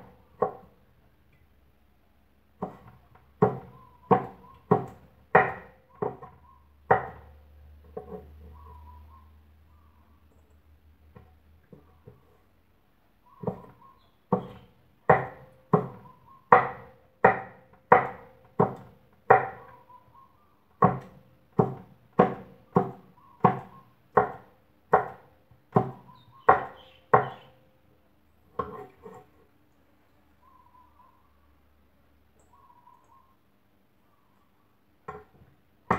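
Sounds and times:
knife chopping on wooden board: 0.4 - 0.7, 2.6 - 7.3, 13.4 - 13.7, 14.3 - 19.6, 20.8 - 27.5.

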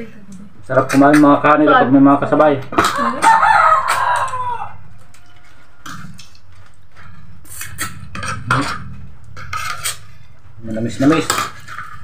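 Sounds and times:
rooster crowing: 2.9 - 5.9.

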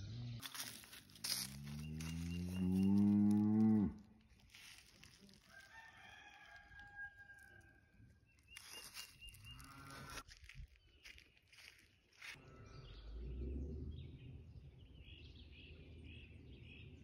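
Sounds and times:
cow mooing: 1.8 - 4.1.

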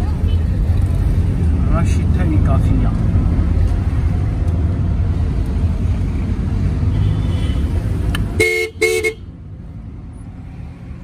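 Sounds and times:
car road and engine rumble: 0.0 - 11.0
car horn toots: 8.4 - 9.3.

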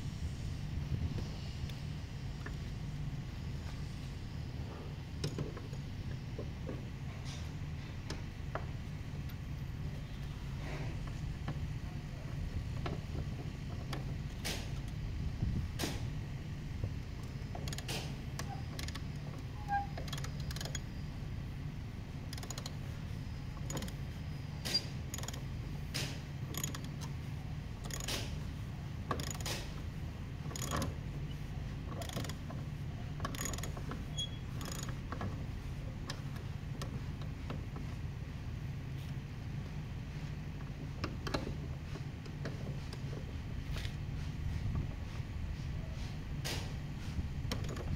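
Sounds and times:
steady low hum: 0.0 - 47.9
ratchet wrench clicking: 20.0 - 20.9, 22.3 - 22.8, 23.6 - 24.0, 24.7 - 25.4, 26.0 - 27.2, 27.8 - 28.3, 29.1 - 29.7, 30.5 - 31.0, 31.9 - 32.4, 33.2 - 35.0.

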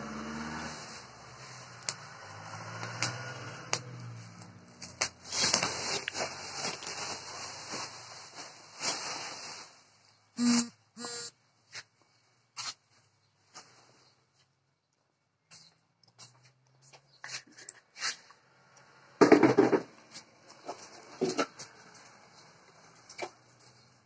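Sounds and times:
low engine hum: 0.0 - 8.0
bubble wrap rustling and crackling: 4.0 - 10.0.

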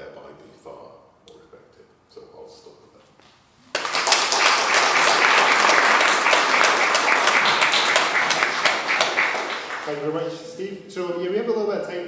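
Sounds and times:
audience applause: 3.7 - 10.1.

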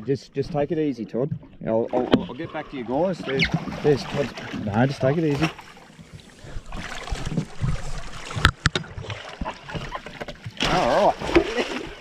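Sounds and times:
water splashing against boat hull: 0.5 - 12.0.

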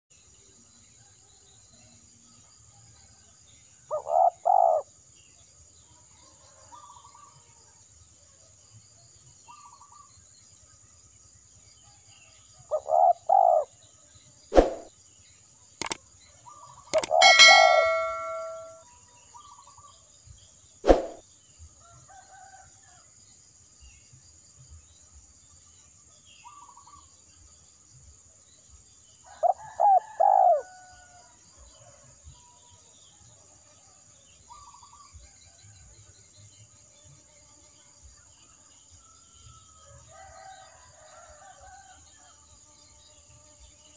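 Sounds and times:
sharp clicks: 17.0 - 18.7
ringing chime: 17.0 - 18.8.

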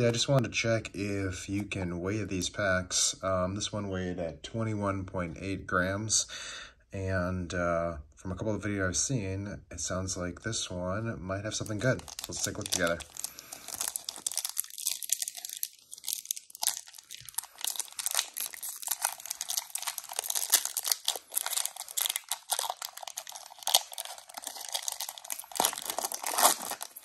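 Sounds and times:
foil wrapper crinkling and tearing: 11.6 - 27.0.

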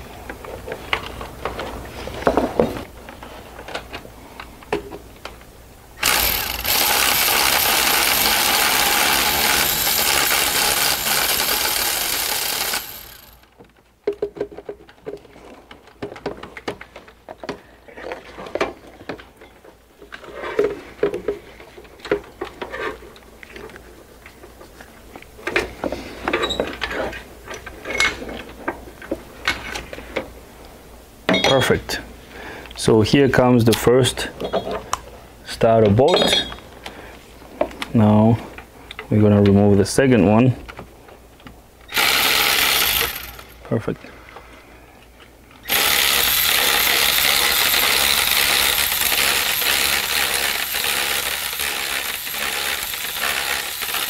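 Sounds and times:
electric ratchet running: 6.0 - 13.4, 41.9 - 43.6, 45.6 - 54.0
clinks of sockets and hand tools: 31.3 - 31.7, 36.1 - 36.6.

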